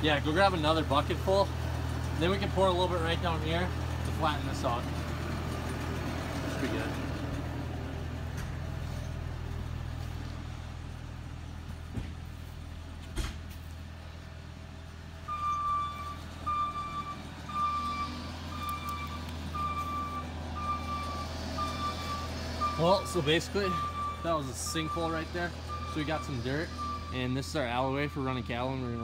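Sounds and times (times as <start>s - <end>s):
backup alarm beeping: 15.3s - 27.3s.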